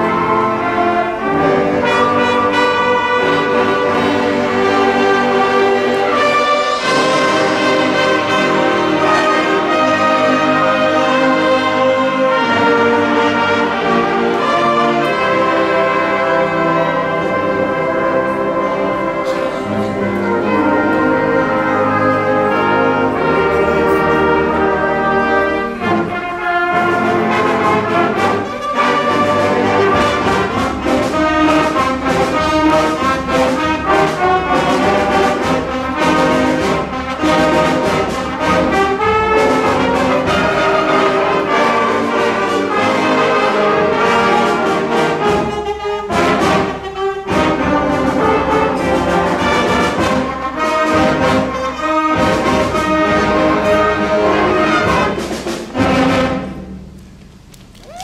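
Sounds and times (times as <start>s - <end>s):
concert band playing: 0.0s - 58.0s.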